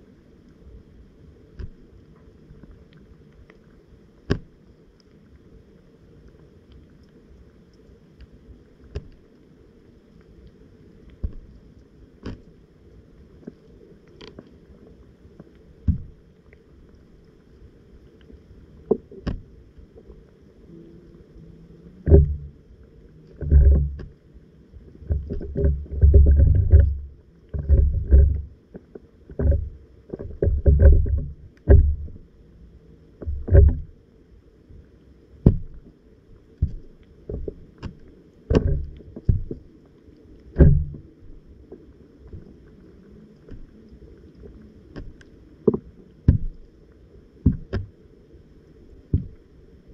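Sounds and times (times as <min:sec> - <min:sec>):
water rumbling: 0:00.0 - 0:49.9
muffled underwater thuds and knocks: 0:01.6 - 0:01.8, 0:04.2 - 0:04.6, 0:11.2 - 0:11.6, 0:12.2 - 0:12.5, 0:15.8 - 0:16.2, 0:18.8 - 0:19.6, 0:22.0 - 0:22.6, 0:23.3 - 0:24.2, 0:24.9 - 0:32.3, 0:33.2 - 0:34.0, 0:35.4 - 0:35.9, 0:36.6 - 0:39.7, 0:40.5 - 0:42.5, 0:43.4 - 0:43.8, 0:44.9 - 0:46.7, 0:47.4 - 0:48.0, 0:49.0 - 0:49.5.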